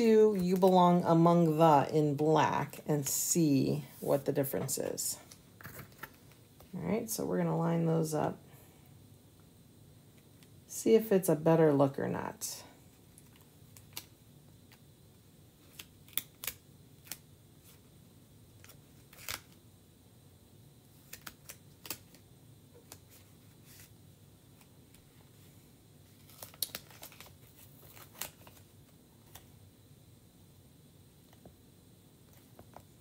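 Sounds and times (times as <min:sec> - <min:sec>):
plastic stencil clicks and crinkles: 0:13.1 - 0:14.8, 0:21.0 - 0:22.2, 0:26.1 - 0:29.5.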